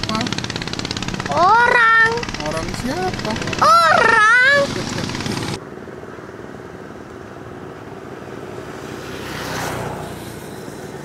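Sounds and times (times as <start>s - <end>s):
motor vehicle passing: 0.0s - 11.0s
outdoor background noise: 0.0s - 11.0s.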